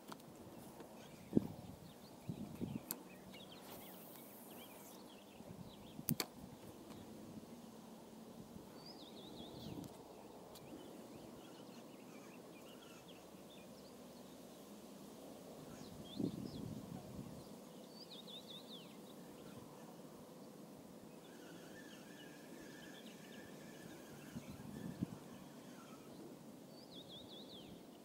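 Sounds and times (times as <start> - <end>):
quiet outdoor ambience: 0.0 - 28.0
faint bird chirps: 8.7 - 14.0, 21.1 - 28.0.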